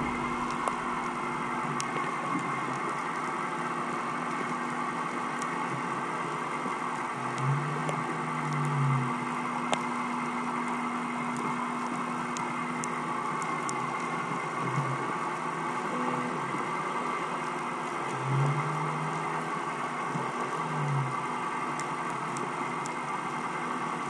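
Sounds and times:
low tone: 0:00.0 - 0:02.0, 0:15.9 - 0:17.4
boat engine hum underwater: 0:00.0 - 0:24.0.

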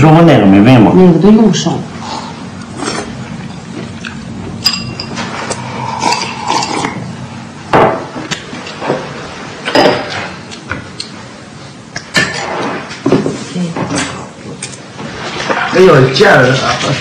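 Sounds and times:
chopsticks and bowls clinking: 0:02.8 - 0:07.0.

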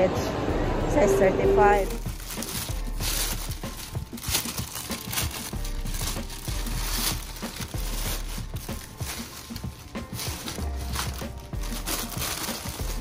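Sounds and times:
plastic bag rustling: 0:01.7 - 0:13.0.

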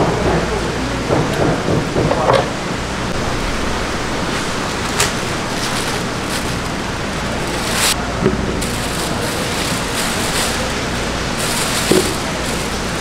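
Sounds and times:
steady rushing noise: 0:01.6 - 0:08.0
plastic cling wrap crackling: 0:04.4 - 0:13.0.

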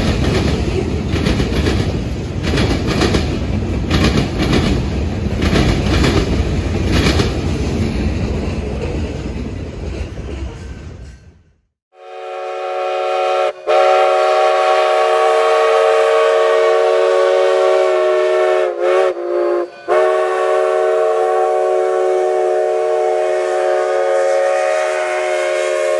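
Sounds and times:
steam locomotive whistle: 0:11.9 - 0:25.9.

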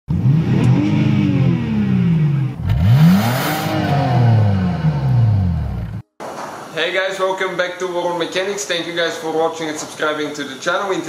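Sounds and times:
car engine revving: 0:00.1 - 0:06.0.

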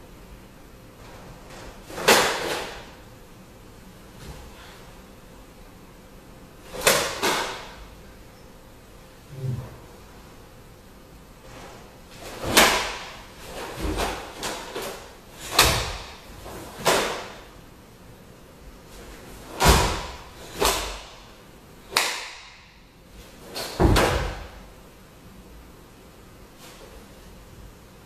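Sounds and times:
cloth snapping with punches: 0:21.9 - 0:22.5.

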